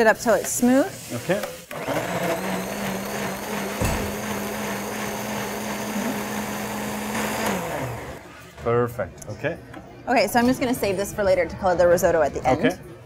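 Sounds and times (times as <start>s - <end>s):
blender running: 1.7s - 8.3s.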